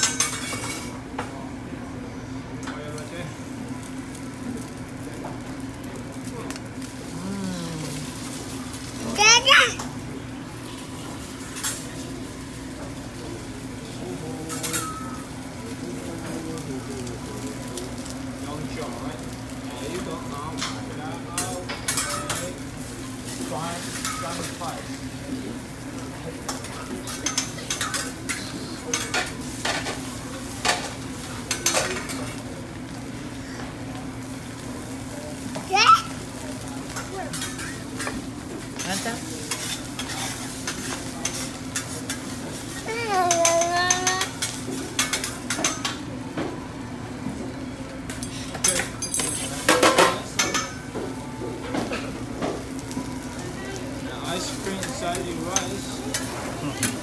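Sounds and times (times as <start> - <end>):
utensils clinking on ceramic dishes: 48.1 - 50.9.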